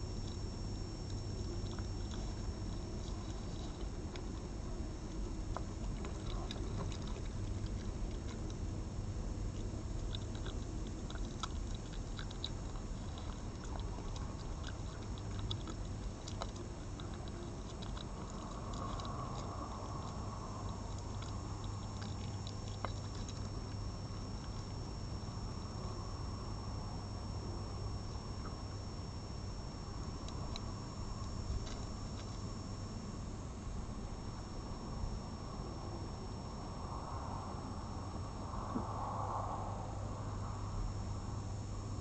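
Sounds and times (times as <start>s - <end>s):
fox chewing wet meat: 0.0s - 26.1s, 27.4s - 35.7s
steady low hum: 0.0s - 42.0s.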